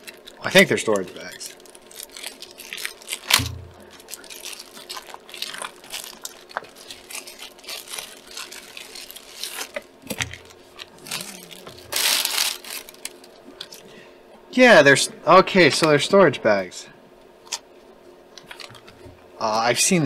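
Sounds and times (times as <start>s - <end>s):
plastic bags crinkling: 0.0s - 13.9s, 18.4s - 19.1s.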